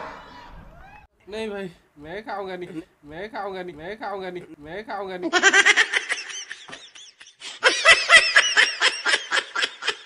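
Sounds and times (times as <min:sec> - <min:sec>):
young men laughing: 0:05.3 - 0:10.0.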